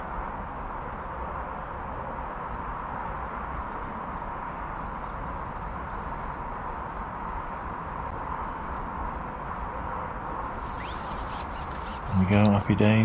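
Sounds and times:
outdoor background hiss: 4.0s - 13.0s.

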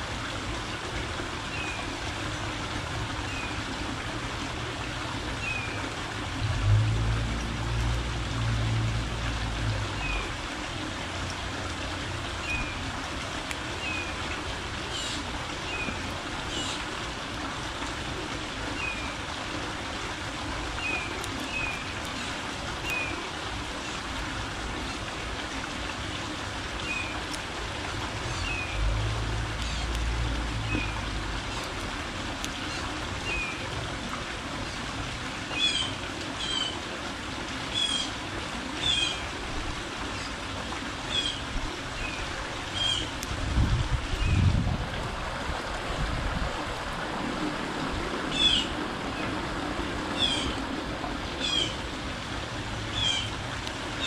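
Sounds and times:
birds chirping: 48.3s - 49.3s, 50.2s - 50.6s, 51.4s - 51.8s, 52.9s - 53.3s.

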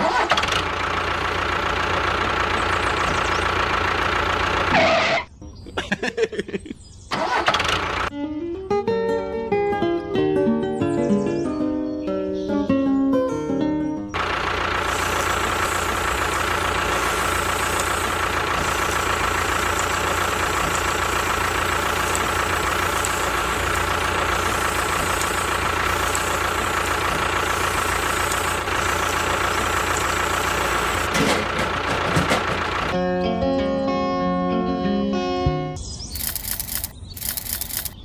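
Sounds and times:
model engine droning: 14.2s - 33.0s.

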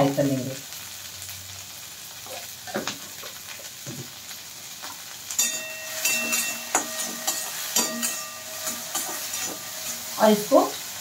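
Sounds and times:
okra sizzling in oil: 0.0s - 11.0s
metal spatula scraping a pan: 5.4s - 11.0s.

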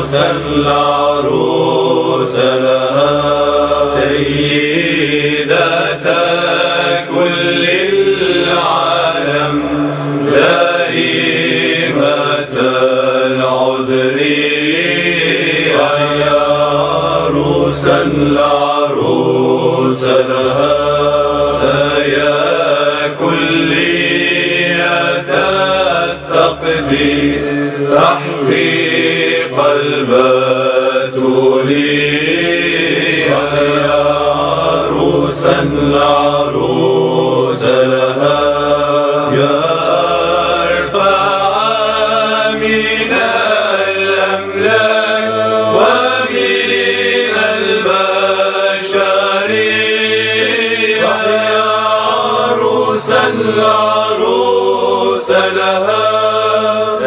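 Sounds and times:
men chanting in church: 0.0s - 57.0s.

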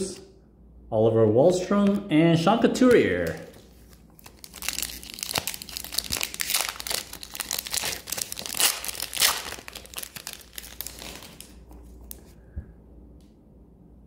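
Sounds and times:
foil wrapper crinkling: 2.9s - 12.3s.

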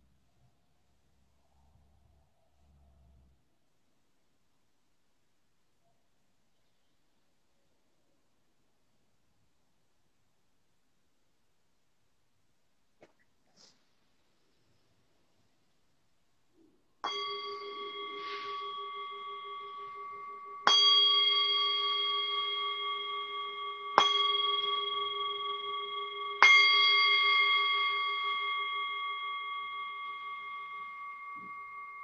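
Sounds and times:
singing bowl ringing: 17.0s - 32.0s.

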